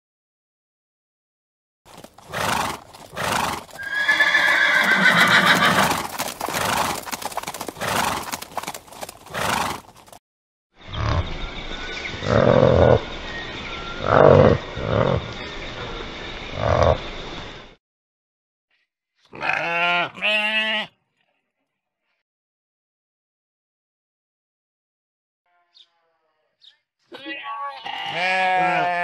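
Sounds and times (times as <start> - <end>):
horse neighing: 1.9 - 9.9
horse hoofbeats galloping: 1.9 - 10.2
low grunting animal calls: 10.9 - 11.4, 12.2 - 13.0, 14.0 - 15.4, 16.5 - 17.0.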